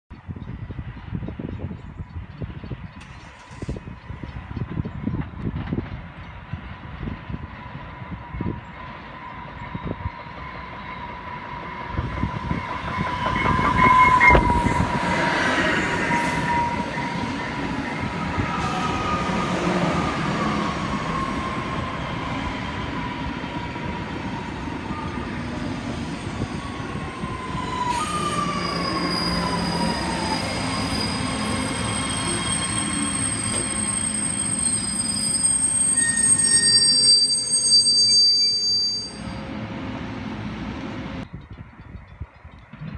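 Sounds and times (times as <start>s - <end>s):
wheel and rail rumble: 0.4s - 42.9s
train high whine: 3.0s - 41.3s.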